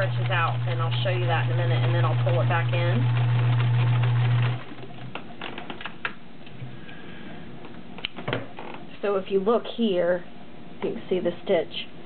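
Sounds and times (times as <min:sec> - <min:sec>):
sewing machine running: 0:00.0 - 0:04.8.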